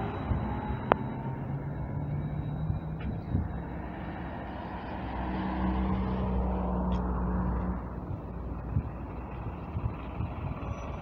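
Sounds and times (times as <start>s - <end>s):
low street rumble: 0.0s - 11.0s
vehicle engine hum: 0.0s - 11.0s.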